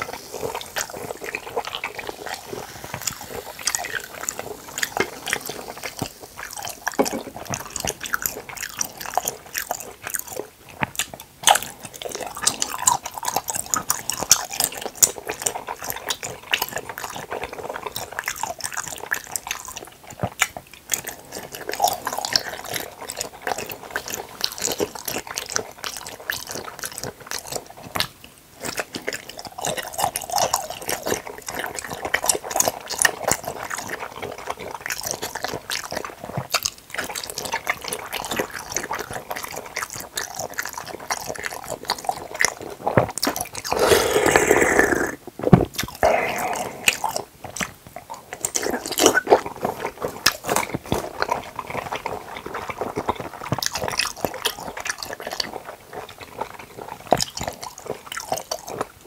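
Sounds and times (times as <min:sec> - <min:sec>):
cola pouring into cup: 0:00.0 - 0:08.6
wet jelly chewing: 0:00.0 - 0:59.0
lip smacks: 0:43.2 - 0:52.2.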